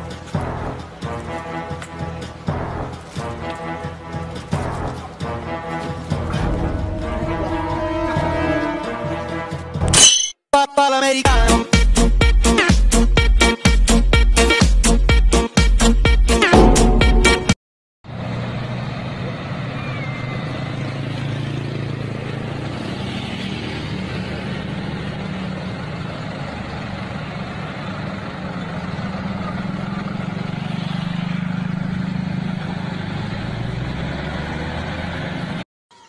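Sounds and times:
vehicle engines idling: 0.0s - 9.8s, 18.1s - 35.6s
street noise: 0.0s - 10.4s, 16.3s - 36.0s.

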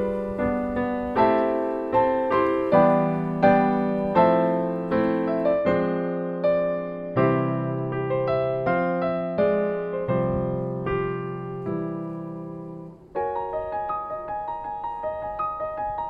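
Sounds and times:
slow gentle piano piece: 0.0s - 16.0s.

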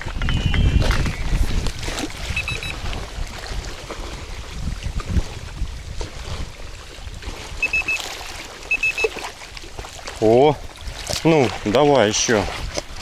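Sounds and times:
waves lapping on shore: 0.0s - 13.0s
wind buffeting microphone: 0.0s - 13.0s
short high beeps: 2.3s - 2.8s, 7.6s - 9.2s.

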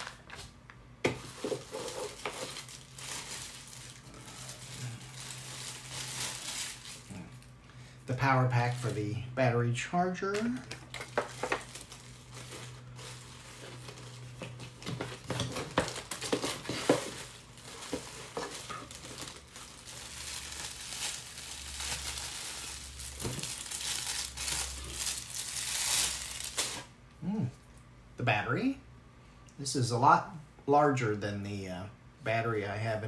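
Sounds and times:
plastic bag crinkling: 0.0s - 0.5s, 1.2s - 9.2s, 10.0s - 26.9s.

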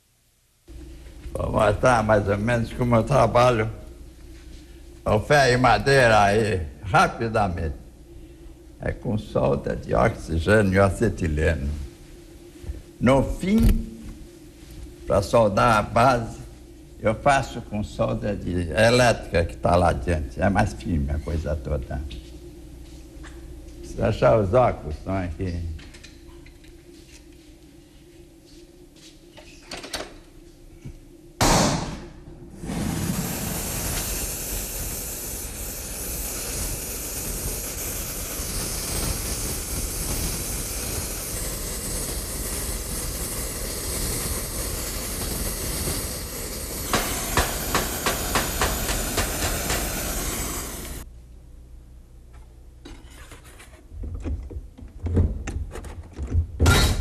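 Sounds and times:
welding torch flame hissing: 0.7s - 7.8s, 9.1s - 19.0s, 32.5s - 51.1s
torch burst: 31.4s - 51.0s.

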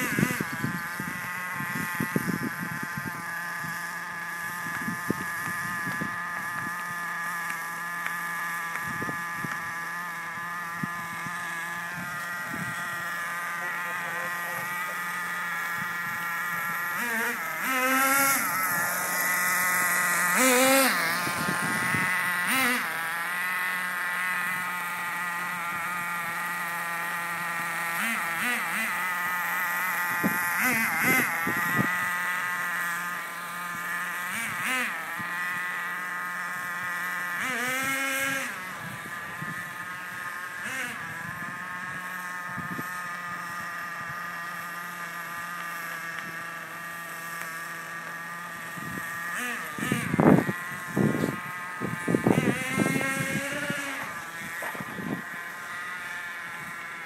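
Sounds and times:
racing engine buzzing whine: 0.0s - 57.0s.

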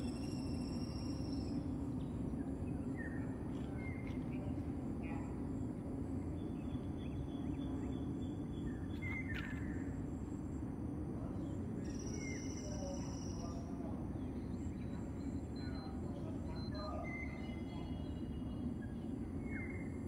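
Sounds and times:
faint bird chirps: 0.0s - 5.3s, 11.2s - 20.0s.

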